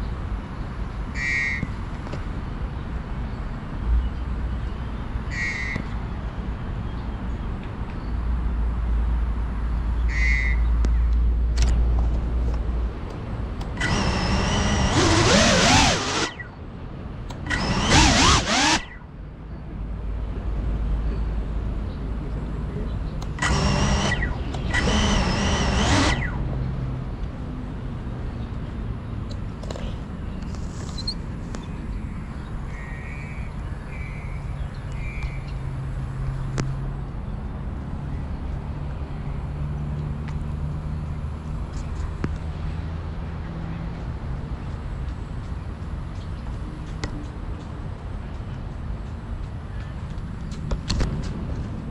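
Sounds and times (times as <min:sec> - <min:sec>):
sharp click: 0:10.8 - 0:16.5, 0:17.3 - 0:19.0
drone motors spinning up: 0:13.6 - 0:16.5, 0:17.3 - 0:19.0, 0:23.2 - 0:26.6.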